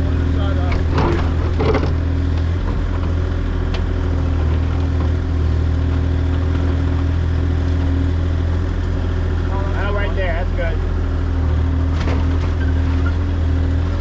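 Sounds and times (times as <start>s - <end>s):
excavator diesel engine running: 0.0s - 14.0s
excavator bucket digging soil: 0.7s - 7.8s.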